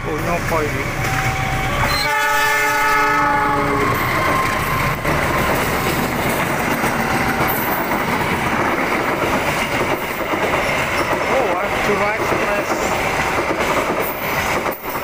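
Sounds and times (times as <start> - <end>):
train coaches running on rails: 0.0 - 15.0
locomotive horn: 1.1 - 5.0.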